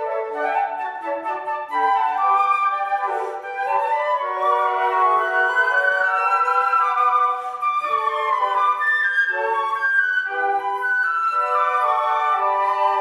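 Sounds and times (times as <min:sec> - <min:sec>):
flute quartet playing: 0:00.0 - 0:13.0.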